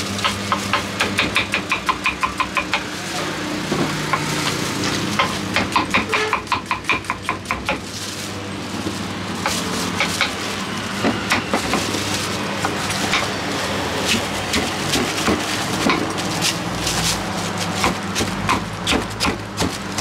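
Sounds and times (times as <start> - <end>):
knife chopping on wooden board: 0.2 - 2.9, 5.2 - 7.8, 17.7 - 20.0
knife scraping fruit: 9.4 - 20.0.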